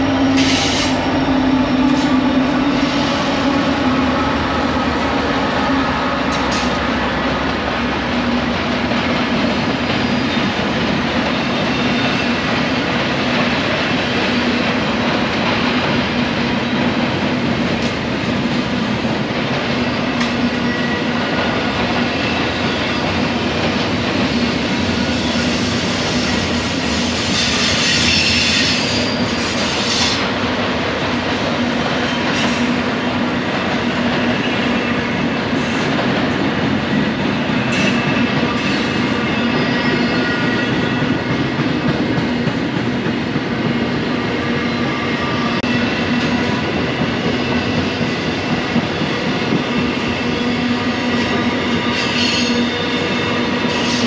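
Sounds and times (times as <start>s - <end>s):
train cars rumbling on rails: 0.0s - 54.0s
high wheel squeal: 24.9s - 30.3s.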